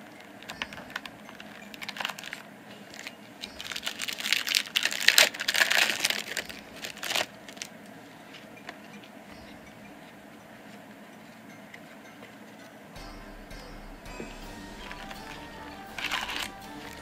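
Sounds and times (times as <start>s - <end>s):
foil wrapper crinkling and tearing: 1.8s - 7.7s.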